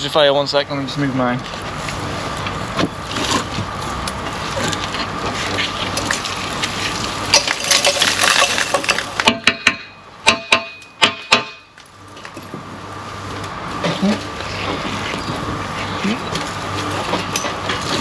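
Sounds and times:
hammer blows on steel: 9.4s - 11.7s.

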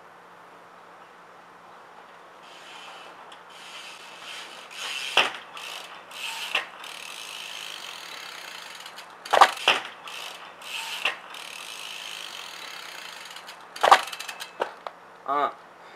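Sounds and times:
bike rear hub ratcheting: 2.4s - 14.8s.

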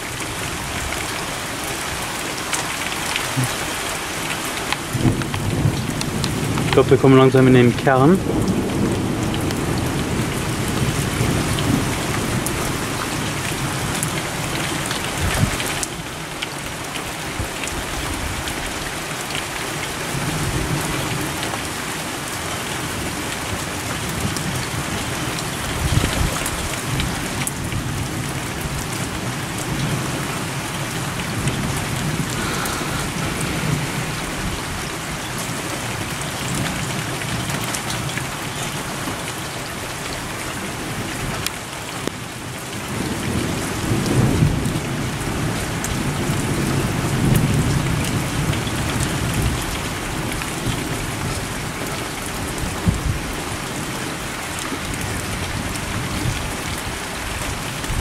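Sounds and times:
heavy rain pouring: 0.0s - 58.0s
thunder rumbling: 25.7s - 36.8s.

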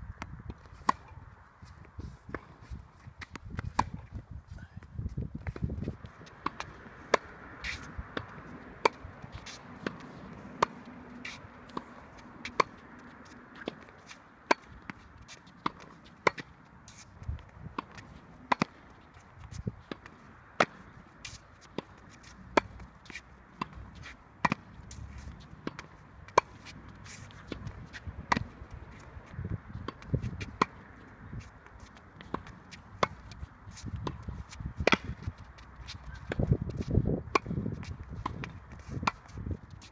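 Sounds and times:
tennis balls struck by rackets: 0.1s - 4.3s, 5.3s - 39.9s
shoe scuffs and footsteps: 4.6s - 14.3s, 26.2s - 39.9s.

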